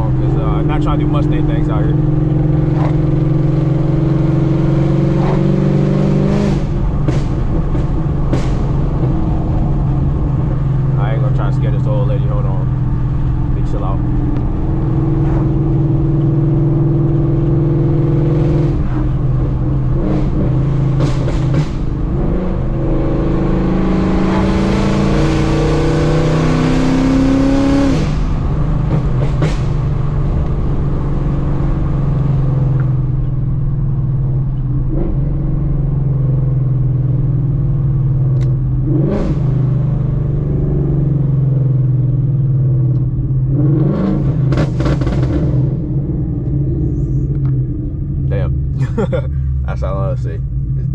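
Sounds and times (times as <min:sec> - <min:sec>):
car engine accelerating: 0:00.0 - 0:50.9
exhaust pops: 0:06.5 - 0:12.6, 0:18.7 - 0:22.1, 0:27.9 - 0:30.8.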